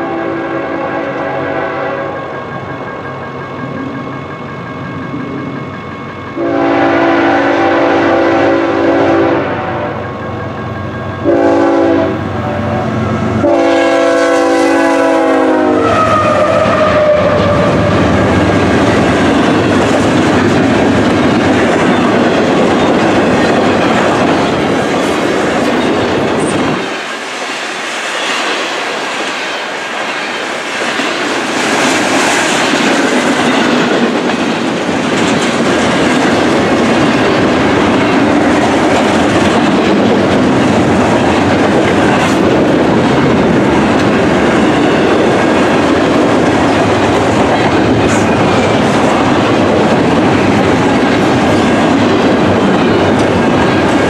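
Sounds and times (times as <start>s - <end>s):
locomotive air horn blasts: 0.0s - 2.2s, 6.4s - 10.0s, 11.2s - 18.0s
train wheels clacking on rails: 13.1s - 54.0s.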